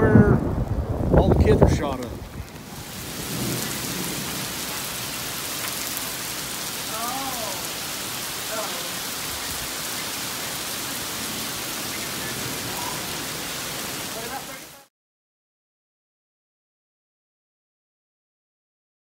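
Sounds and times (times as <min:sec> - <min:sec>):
heavy rain on pavement: 0:00.0 - 0:14.9.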